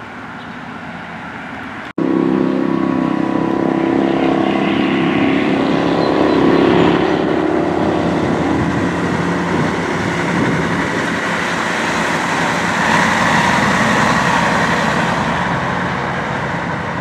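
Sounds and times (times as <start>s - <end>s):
higher steady tone: 2.0s - 16.3s
fire truck engine running: 5.1s - 17.0s.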